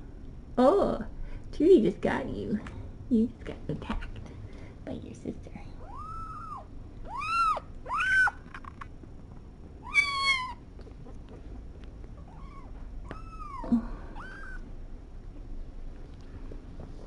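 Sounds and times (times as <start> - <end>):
kittens mewing: 5.8 - 8.9, 9.8 - 14.7.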